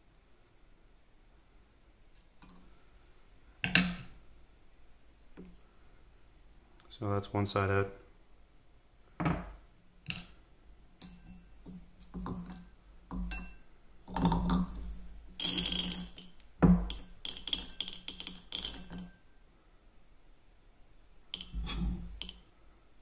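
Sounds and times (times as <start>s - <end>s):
small metal parts rattling: 15.4s - 19.1s, 21.4s - 22.4s.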